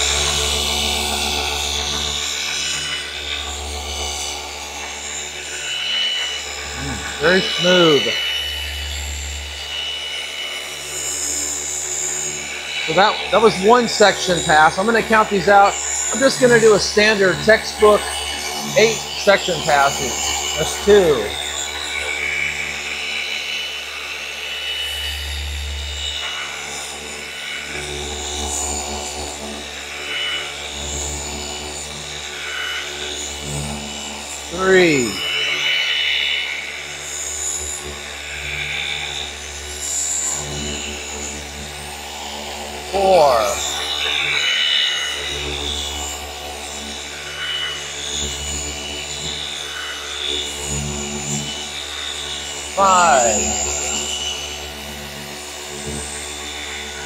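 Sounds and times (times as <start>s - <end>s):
orbital polisher running: 0.0s - 34.4s.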